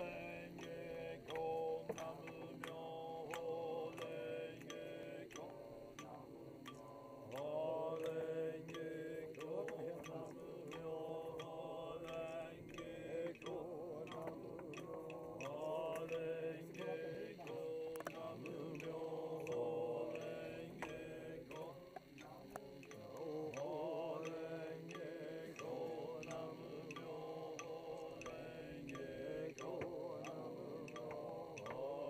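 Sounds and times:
group of voices chanting: 0:00.0 - 0:32.0
sharp ticks keeping beat: 0:00.0 - 0:32.0.

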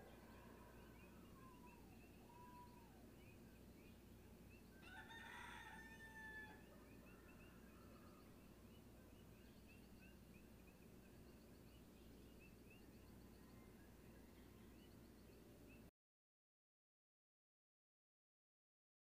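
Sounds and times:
rooster crowing: 0:04.8 - 0:08.2.

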